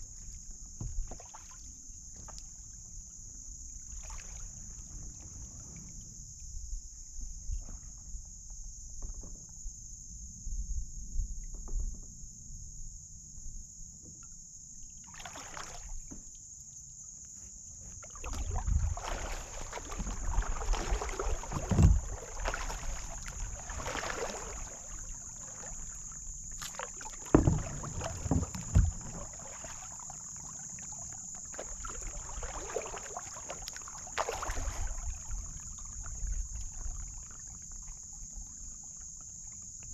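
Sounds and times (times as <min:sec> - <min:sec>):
paddle knocking against hull: 0:00.0 - 0:02.6, 0:11.4 - 0:12.3, 0:15.9 - 0:16.3, 0:17.4 - 0:37.2
paddle strokes splashing: 0:00.0 - 0:02.6, 0:03.7 - 0:05.8, 0:15.0 - 0:16.2, 0:17.4 - 0:38.9.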